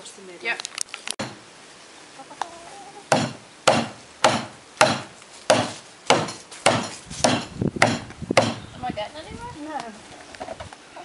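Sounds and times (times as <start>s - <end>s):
sharp knocks on plastic panels: 3.1s - 8.6s.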